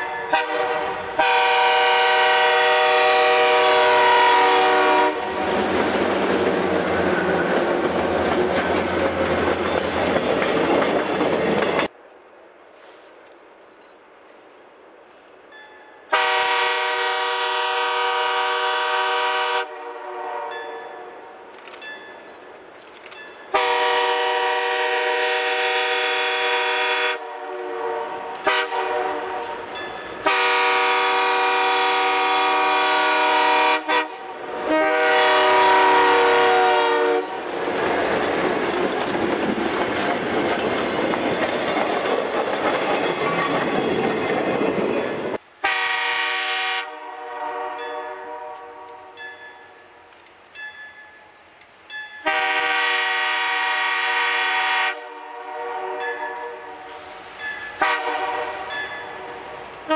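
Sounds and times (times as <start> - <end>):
locomotive air horn chord: 0.0 - 5.4, 16.1 - 21.2, 23.5 - 29.6, 30.2 - 37.4, 45.6 - 49.2, 52.2 - 56.7, 57.8 - 58.8
locomotive passing close: 0.0 - 12.0, 29.1 - 45.4.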